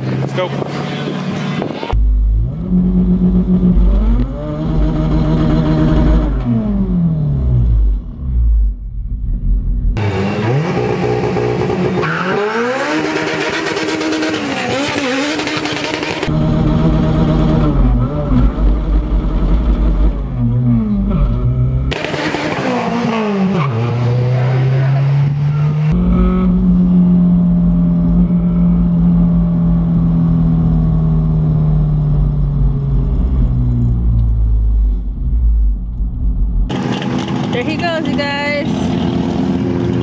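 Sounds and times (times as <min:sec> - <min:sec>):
car engine revving hard: 0:10.0 - 0:27.9.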